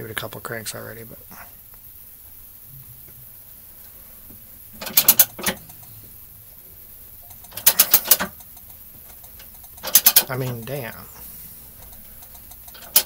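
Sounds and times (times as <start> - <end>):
vise ratcheting clicks: 4.8 - 6.0, 7.2 - 11.0, 11.7 - 13.0.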